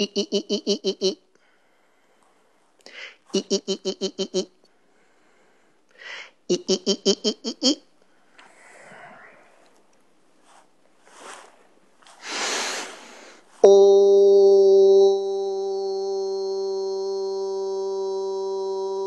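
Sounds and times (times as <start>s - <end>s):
person breathing: 1.3s - 3.3s, 4.6s - 6.5s, 8.0s - 9.7s, 12.2s - 13.6s.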